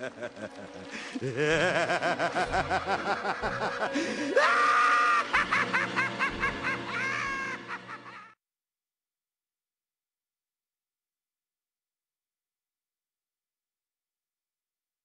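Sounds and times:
evil cackling laugh: 0:00.0 - 0:08.4.

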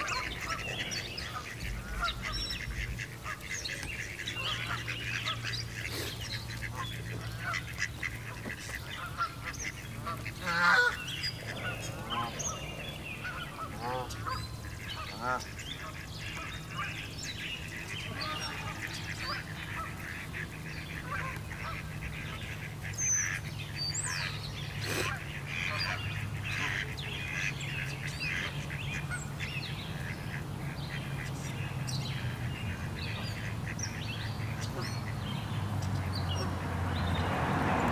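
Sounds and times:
steady low hum: 0:00.0 - 0:08.3
birds calling: 0:00.0 - 0:37.9.

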